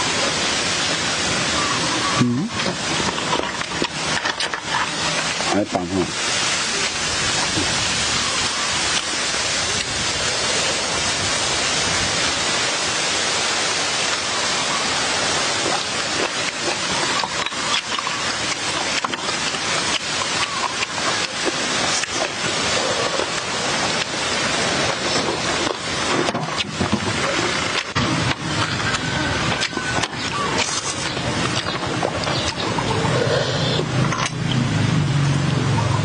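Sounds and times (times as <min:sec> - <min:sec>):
steady hiss: 0:00.0 - 0:35.4.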